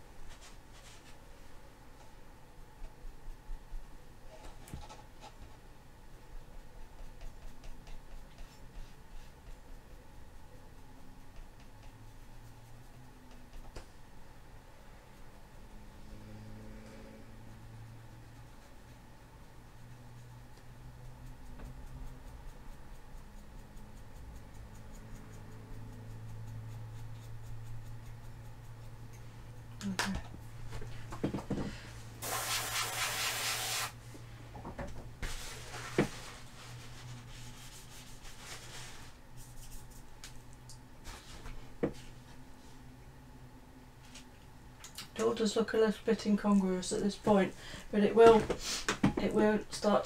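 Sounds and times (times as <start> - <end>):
brush scrubbing paint: 2.8 - 13.7, 17.2 - 29.8, 32.2 - 34.0, 35.2 - 40.1.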